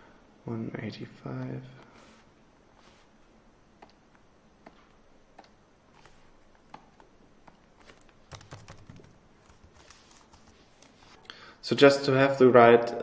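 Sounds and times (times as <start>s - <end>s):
computer keys typing: 4.6s - 10.9s.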